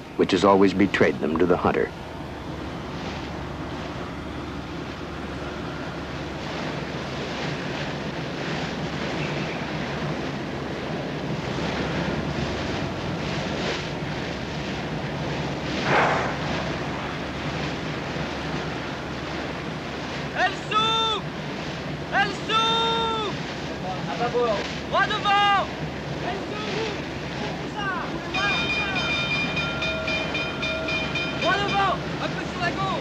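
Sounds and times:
wind and sea rushing: 0.0 - 33.0
low hum: 15.8 - 19.2.

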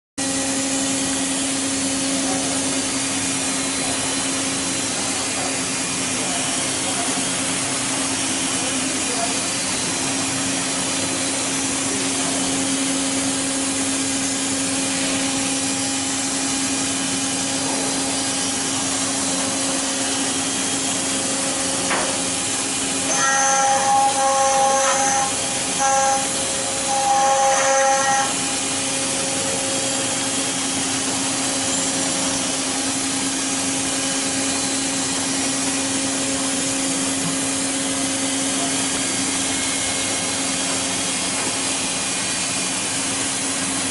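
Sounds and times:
high whine: 21.1 - 32.6
carving bit grinding stone: 22.8 - 29.2.

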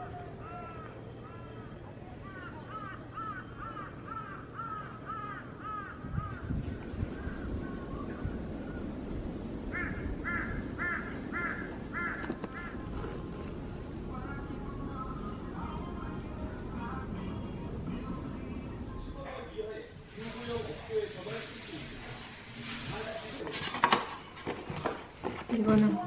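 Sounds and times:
crows cawing: 0.4 - 1.6, 2.2 - 6.6, 9.6 - 13.2
wind buffeting microphone: 4.1 - 19.2.

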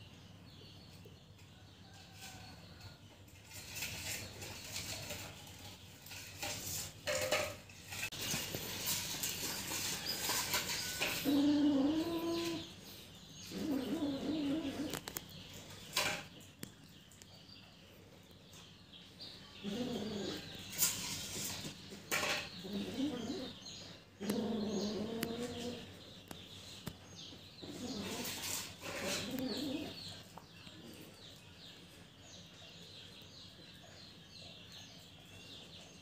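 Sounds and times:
low wavering animal calls: 11.0 - 12.8, 13.5 - 15.1.

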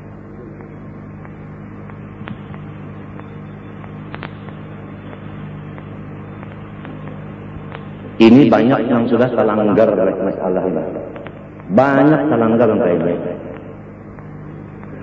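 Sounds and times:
recording hum and hiss: 0.0 - 15.0
faint clicks: 0.6 - 7.9.

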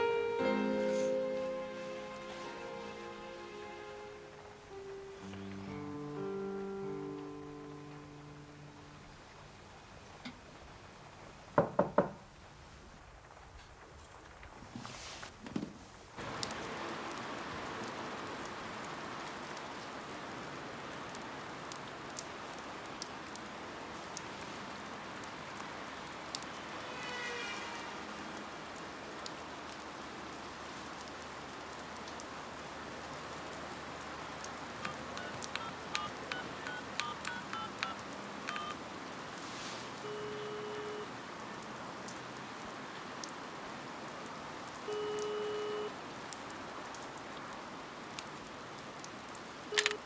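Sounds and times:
steady rain: 0.0 - 50.0
telephone keypad beeps: 34.8 - 38.8, 49.7 - 50.0.

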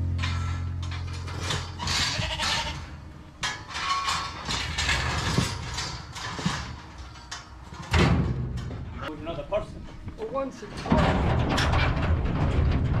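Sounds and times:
sheep and lambs bleating: 1.8 - 3.0.

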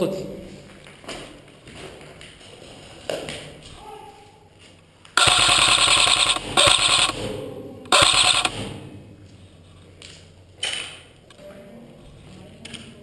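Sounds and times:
airsoft rifle bursts: 5.2 - 7.2, 7.9 - 8.6.

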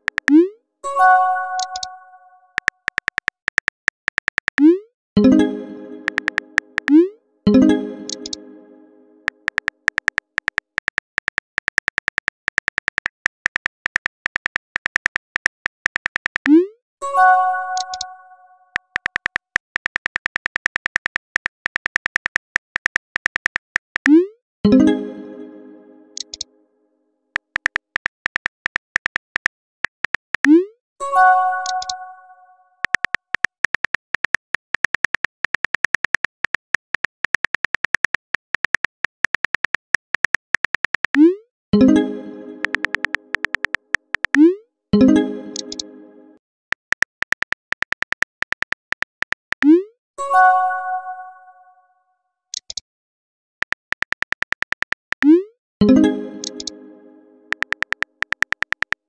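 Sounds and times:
phone keyboard clicks: 0.0 - 0.4, 2.6 - 4.6, 6.0 - 7.0, 9.2 - 16.5, 18.7 - 24.1, 27.4 - 30.5, 32.8 - 41.2, 42.6 - 44.5, 45.6 - 45.8, 46.7 - 49.7, 52.6 - 52.8, 53.6 - 55.3, 56.4 - 56.7, 57.5 - 59.0
message chime: 5.2 - 9.2, 55.8 - 57.5.

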